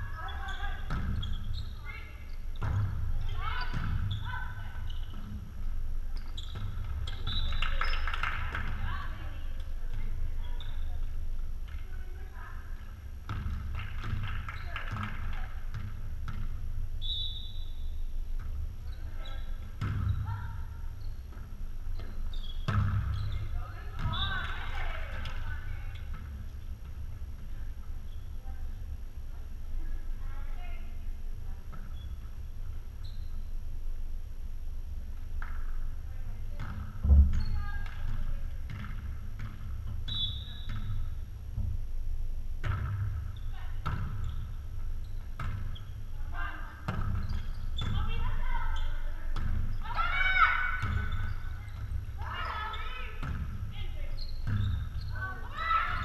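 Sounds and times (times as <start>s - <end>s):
volleyball thumps in a gym: 0.0s - 56.0s
volleyball slap with echo: 42.6s - 44.2s.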